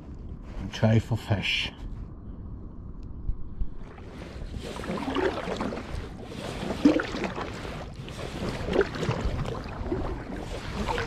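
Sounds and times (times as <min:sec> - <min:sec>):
paddle strokes swishing through water: 0:03.8 - 0:11.0.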